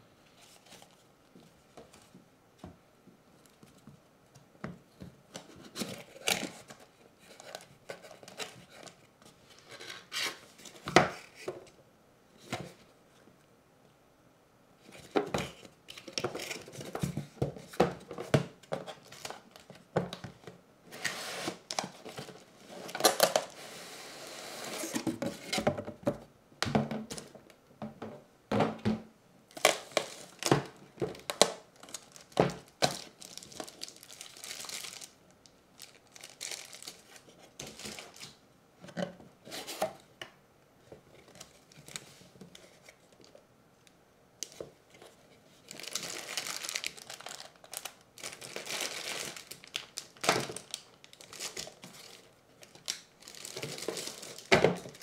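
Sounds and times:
plastic wrap crinkling: 21.0s - 23.6s, 29.5s - 38.4s, 44.4s - 55.0s.

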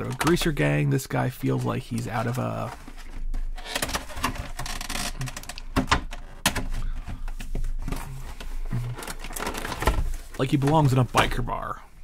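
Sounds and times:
plastic cracks: 3.0s - 8.0s, 8.7s - 11.3s
plastic packaging crackling: 7.7s - 11.3s.

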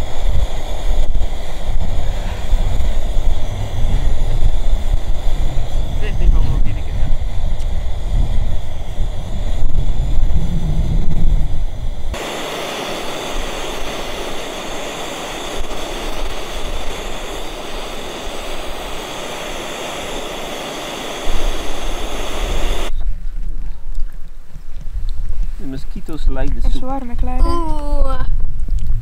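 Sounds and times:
gas stove burner roaring: 0.0s - 22.9s
wind buffeting microphone: 0.0s - 29.0s.

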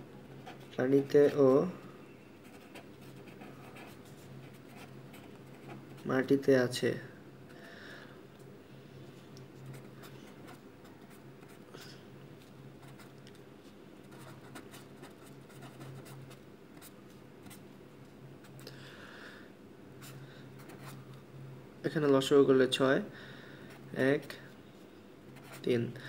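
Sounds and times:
faint low hum: 0.0s - 26.0s
marker pen scratching on paper: 2.4s - 6.1s, 14.0s - 17.6s, 20.0s - 21.0s, 25.4s - 25.7s.

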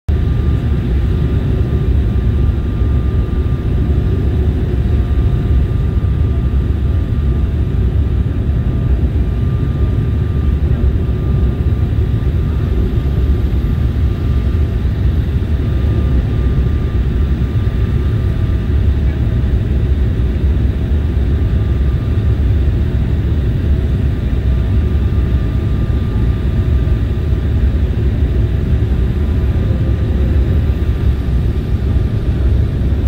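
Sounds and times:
faint steady whine: 0.1s - 33.0s
jet engines rumbling: 0.1s - 33.0s.

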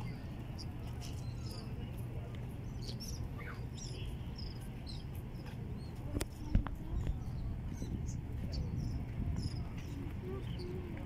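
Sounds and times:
small birds chirping: 0.0s - 11.0s.

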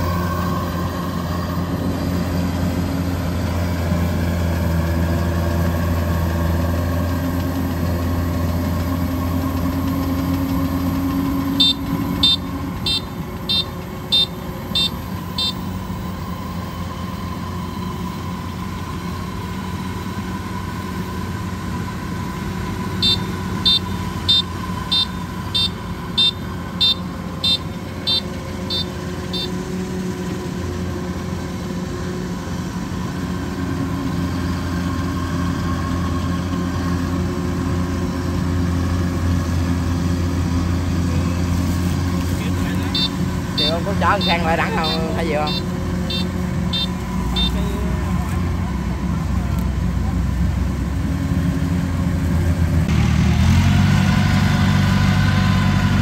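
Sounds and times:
combine harvester diesel engine: 0.0s - 56.0s
warning beeper short high beeps: 11.4s - 15.7s, 23.0s - 29.6s, 42.7s - 47.9s.

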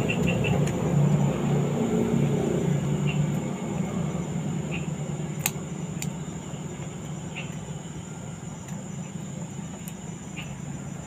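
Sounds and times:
low background hum: 0.0s - 11.0s
sharp clicks: 5.4s - 6.2s.

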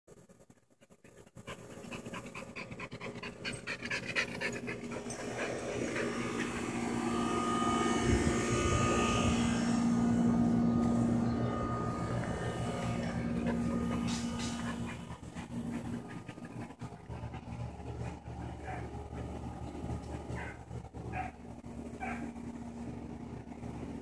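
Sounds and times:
mechanical hum with whine: 0.1s - 24.0s
dog panting: 0.7s - 6.7s, 12.7s - 21.3s.

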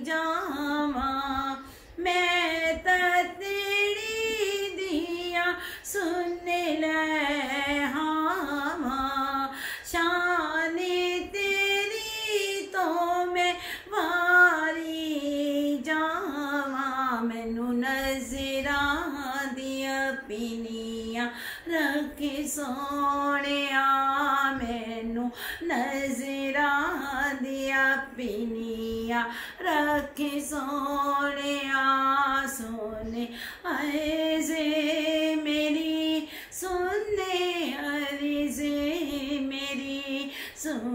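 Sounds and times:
woman singing unaccompanied: 0.0s - 40.9s
singer breathing: 1.6s - 2.0s, 5.6s - 5.9s, 9.5s - 10.0s, 13.6s - 13.9s, 21.3s - 21.7s, 25.3s - 25.6s, 29.3s - 29.6s, 33.3s - 33.7s, 36.2s - 36.6s, 40.3s - 40.6s.

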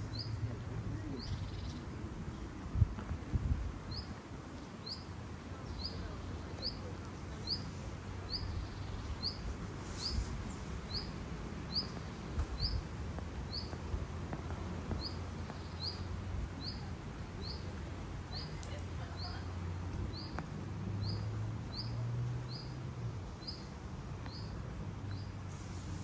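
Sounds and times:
bird chirping: 0.0s - 0.4s, 8.3s - 9.4s, 11.7s - 12.8s, 13.5s - 13.8s, 15.0s - 17.7s, 21.0s - 22.8s.

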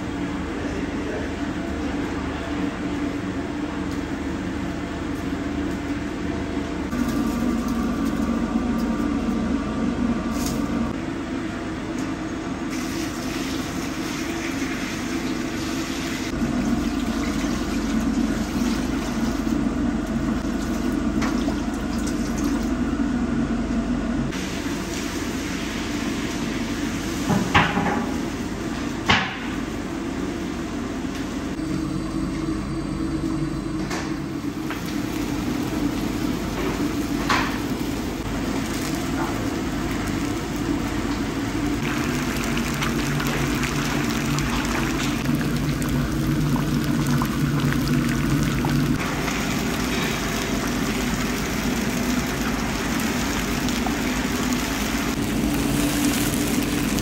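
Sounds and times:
food frying in oil: 34.6s - 57.0s.

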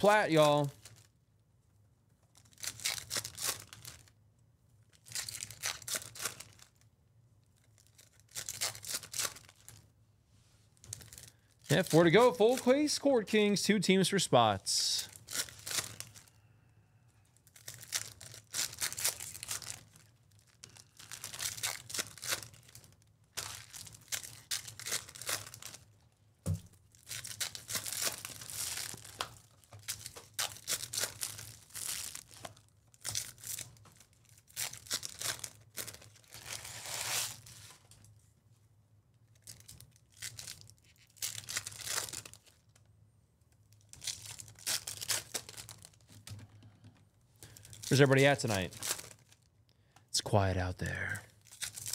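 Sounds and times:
foil wrappers tearing and crinkling: 0.0s - 1.1s, 2.3s - 4.1s, 4.9s - 6.8s, 7.6s - 9.8s, 10.8s - 12.9s, 15.0s - 16.4s, 17.4s - 26.0s, 26.8s - 38.0s, 39.4s - 42.8s, 43.8s - 46.2s, 47.4s - 49.5s, 51.4s - 51.9s.

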